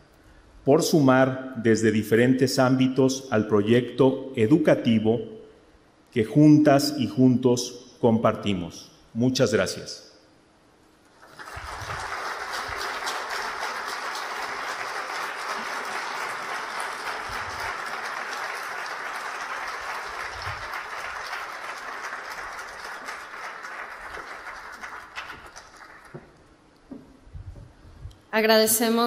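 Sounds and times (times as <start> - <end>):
audience applauding: 11.1 - 26.4.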